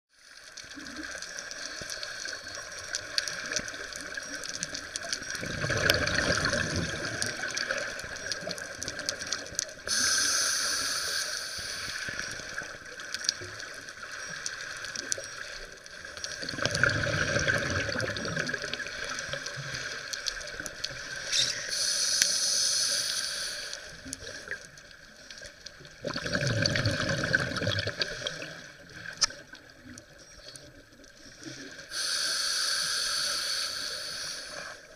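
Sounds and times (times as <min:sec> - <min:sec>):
steady watery hiss: 0:00.2 - 0:25.9, 0:31.2 - 0:34.9
bubbly rumble of exhaled air: 0:05.3 - 0:08.2, 0:16.4 - 0:19.1, 0:25.9 - 0:28.6
diver breathing through regulator: 0:09.9 - 0:12.4, 0:21.3 - 0:23.9, 0:31.9 - 0:34.9.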